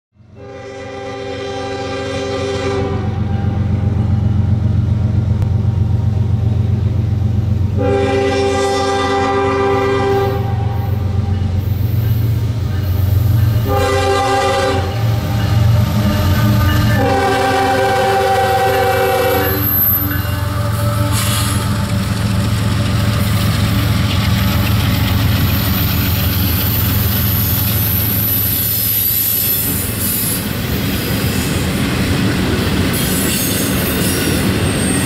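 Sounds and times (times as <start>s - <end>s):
locomotive air horn blasts: 0.3s - 3.6s, 7.8s - 11.3s, 13.5s - 22.2s
low diesel engine rumble: 15.8s - 28.4s.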